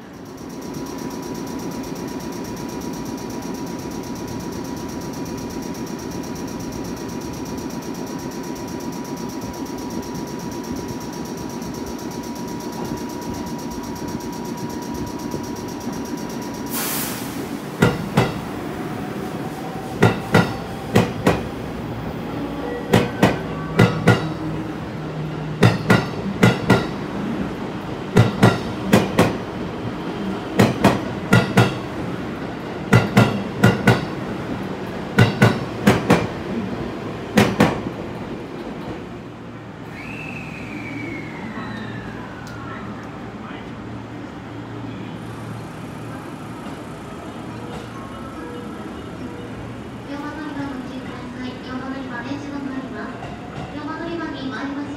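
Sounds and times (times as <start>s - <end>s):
train wheels clacking over rail joints: 25.6s - 27.0s, 28.1s - 29.4s, 30.6s - 31.9s, 35.1s - 36.4s.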